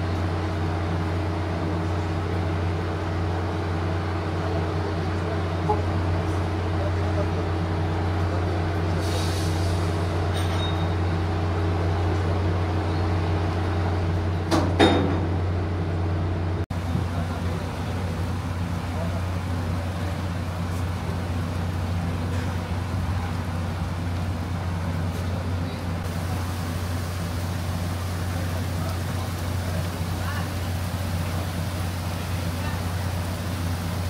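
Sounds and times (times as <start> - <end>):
loud metal clank: 14.5 - 15.4
heavy rain falling: 16.8 - 34.0.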